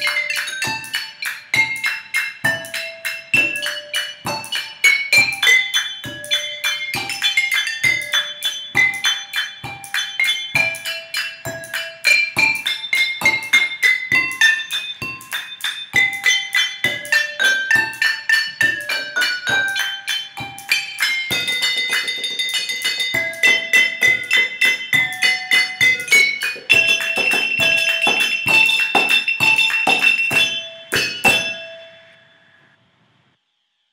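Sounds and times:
percussion clicks and taps: 0.0s - 31.7s
wine glasses and bottles ringing: 0.0s - 32.6s.

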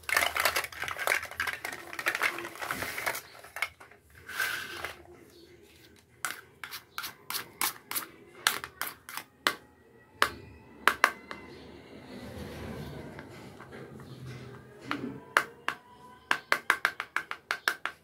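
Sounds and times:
plastic toy fruit shuffled: 0.0s - 9.2s
toy knife tapping on board: 15.3s - 18.0s.

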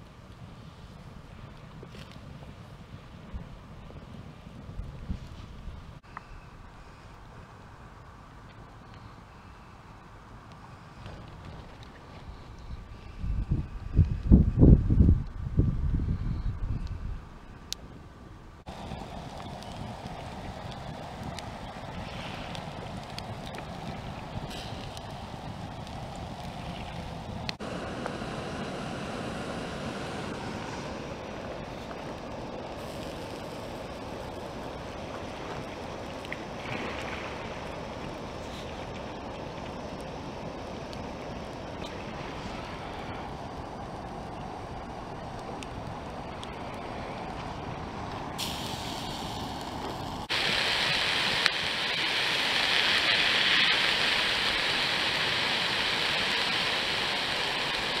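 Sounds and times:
campfire burning: 0.0s - 6.1s, 10.0s - 15.8s, 18.6s - 58.0s
faint crackles: 0.0s - 7.3s, 10.0s - 14.4s, 18.7s - 58.0s
gas stove hissing: 18.7s - 36.0s, 37.7s - 58.0s.

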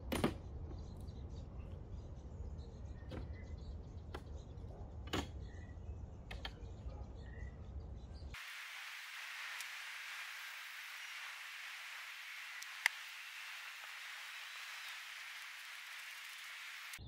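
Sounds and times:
faint chirps: 0.8s - 17.0s
steady hiss: 8.4s - 17.0s
sharp clicks: 12.3s - 17.0s.

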